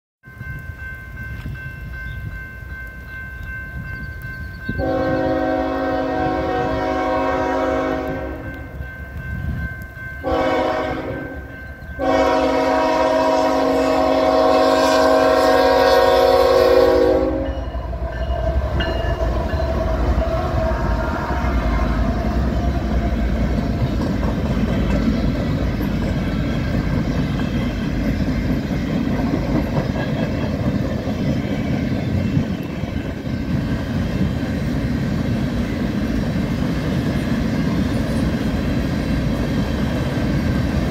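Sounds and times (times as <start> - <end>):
locomotive air horn blasts: 4.8 - 8.7, 10.2 - 17.8
freight cars rumbling: 17.6 - 40.9
train wheel clatter: 18.2 - 40.9.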